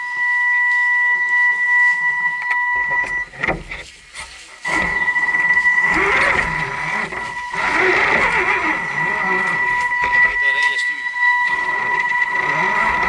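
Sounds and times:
rc car electric motor whine: 0:04.6 - 0:13.0.

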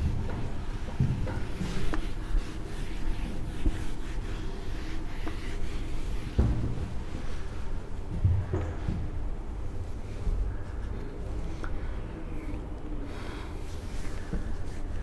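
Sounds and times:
duster rubbing on whiteboard: 0:00.0 - 0:06.9, 0:13.7 - 0:15.0.

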